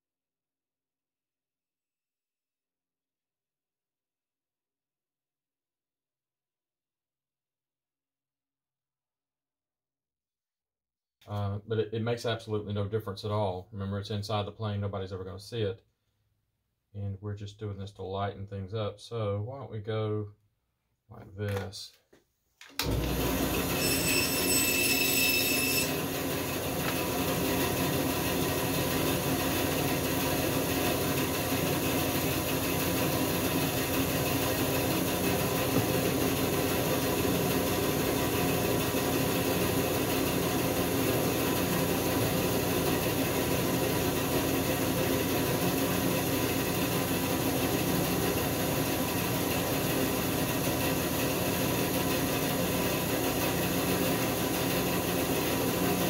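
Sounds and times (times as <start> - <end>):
power tool whirring: 22.8 - 37.6
high-pitched whine: 23.8 - 26.0.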